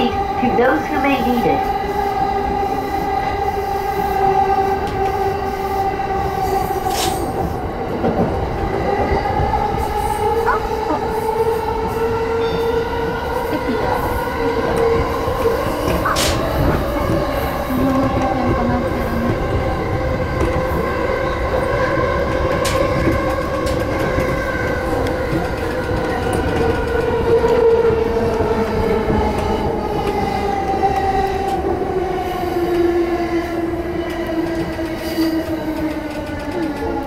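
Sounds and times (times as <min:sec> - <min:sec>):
wheel and rail rumble: 0:00.0 - 0:37.0.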